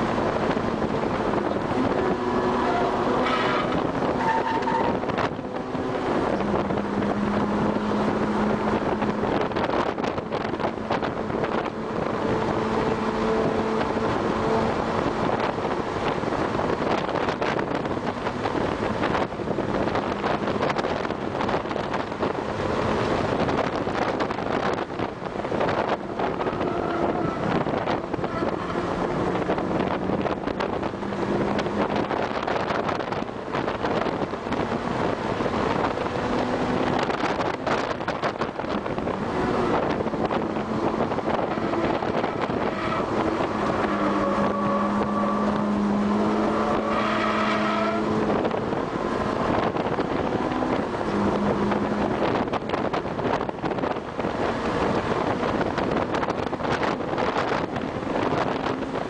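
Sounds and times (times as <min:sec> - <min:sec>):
car engine running hard: 0:00.0 - 0:59.0
wind noise on microphone: 0:00.0 - 0:59.0.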